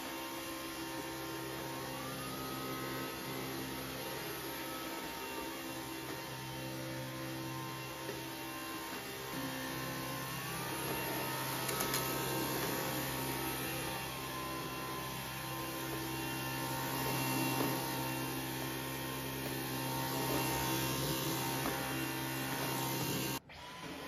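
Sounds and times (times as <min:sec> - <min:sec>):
vacuum cleaner running: 0:00.0 - 0:24.0
brush head pushed over tiled floor: 0:10.7 - 0:13.8.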